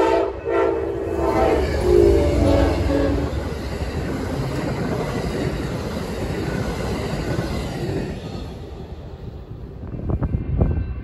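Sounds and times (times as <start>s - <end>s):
train horn blast: 0.0s - 3.4s
train wheels rumbling on rails: 0.0s - 11.0s.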